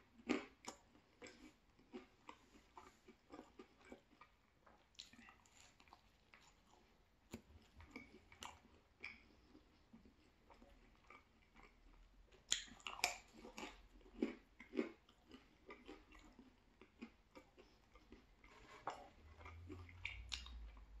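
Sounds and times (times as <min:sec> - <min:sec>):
person chewing pizza crunchily: 0:00.0 - 0:21.0.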